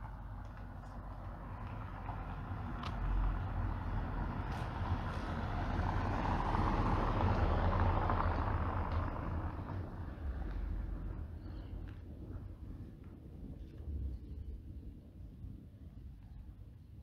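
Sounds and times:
road vehicle passing by: 0.0s - 12.0s.

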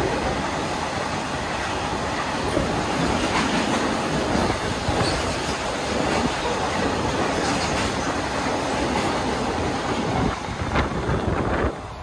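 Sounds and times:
freight train wheels rumbling: 0.0s - 12.0s.

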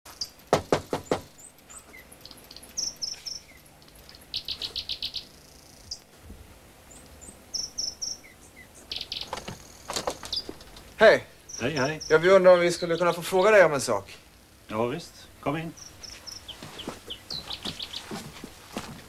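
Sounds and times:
knocking on glass door: 0.5s - 1.3s.

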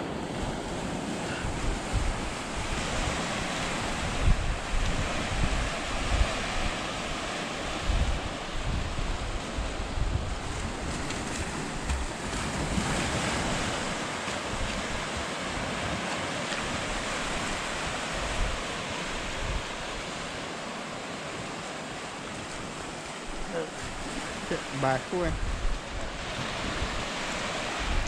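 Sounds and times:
wind buffeting microphone: 0.0s - 20.6s, 22.2s - 28.0s.

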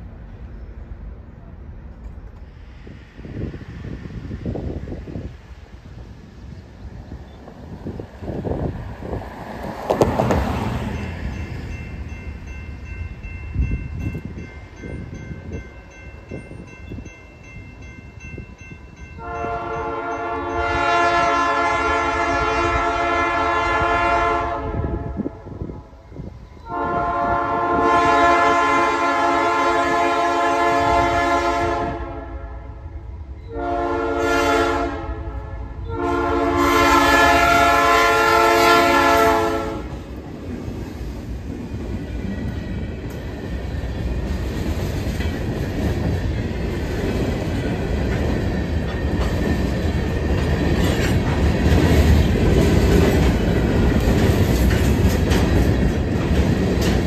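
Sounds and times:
train low rumble: 0.0s - 57.0s
train air horn blasts: 19.2s - 25.9s, 26.6s - 32.9s, 33.5s - 40.0s.

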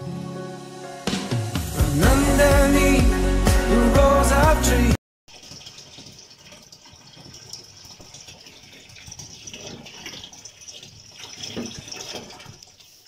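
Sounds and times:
water running from hose into tub: 5.3s - 13.0s.

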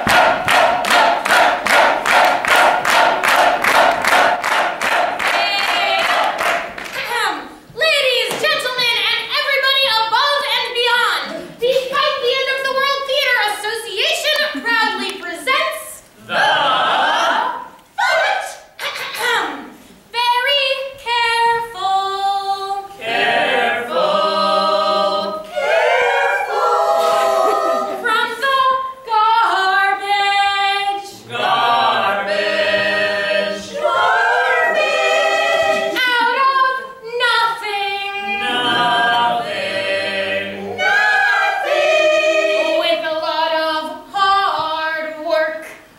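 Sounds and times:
unaccompanied group singing: 0.0s - 6.7s, 16.2s - 17.8s, 22.7s - 28.8s, 29.4s - 36.8s, 37.9s - 44.1s.

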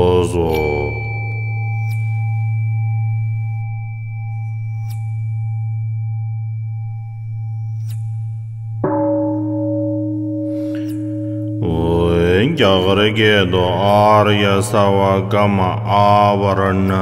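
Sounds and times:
sustained bell-like ringing tones: 0.0s - 17.0s
low hum: 1.0s - 17.0s.

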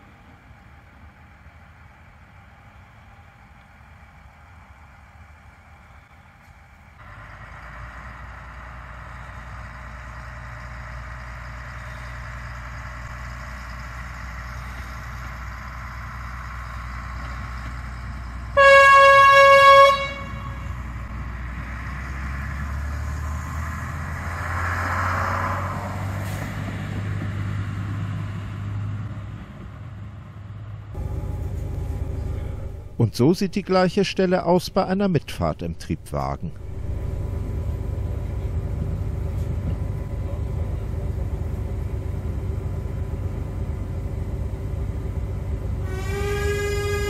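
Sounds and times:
railcar diesel engine running: 0.0s - 47.0s
train horn blast: 18.6s - 21.1s, 45.8s - 47.0s.

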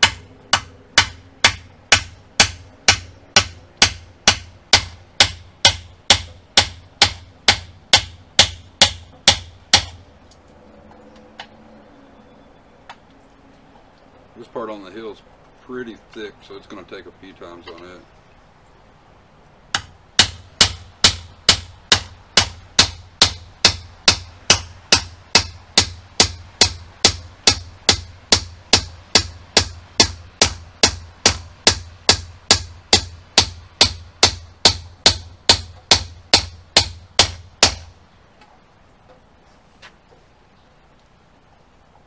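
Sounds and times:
hammer striking metal: 0.0s - 10.0s, 19.7s - 37.9s.

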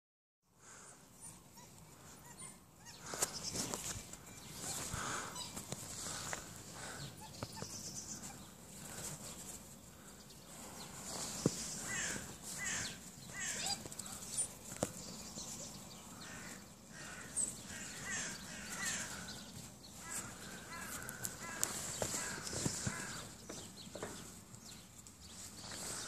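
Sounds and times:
wild dogs calling: 1.2s - 3.6s, 11.8s - 14.6s, 15.4s - 23.4s.

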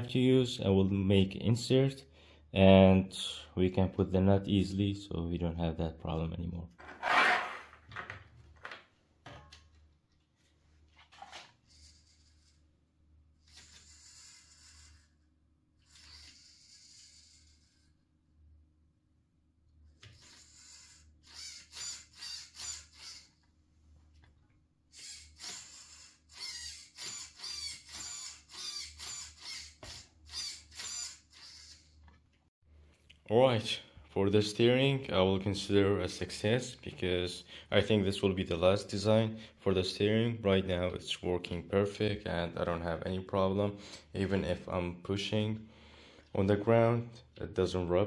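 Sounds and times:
servo whirring: 11.6s - 12.6s, 13.4s - 18.0s, 19.9s - 23.4s, 24.9s - 32.0s.

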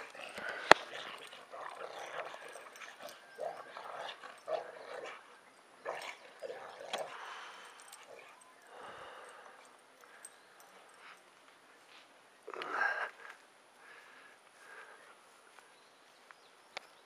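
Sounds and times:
dogs yipping and growling: 0.0s - 10.3s.

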